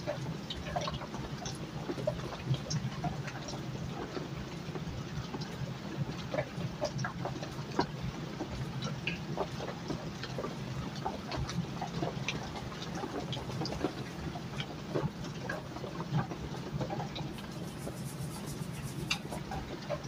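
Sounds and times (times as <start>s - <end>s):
brush stroking on paper: 17.3s - 19.6s
steady low hum: 17.3s - 19.6s
brush scrubbing in metal tin: 17.3s - 19.7s.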